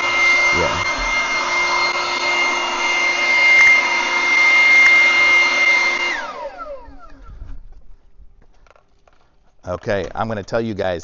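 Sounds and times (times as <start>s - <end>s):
leaf blower running: 0.0s - 7.5s
fan spinning down: 0.0s - 7.7s.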